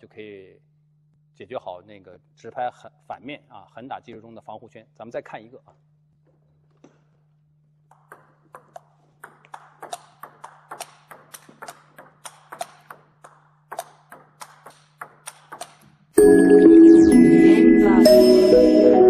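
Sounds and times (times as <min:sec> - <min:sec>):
ping-pong ball knocks: 0:07.9 - 0:15.8.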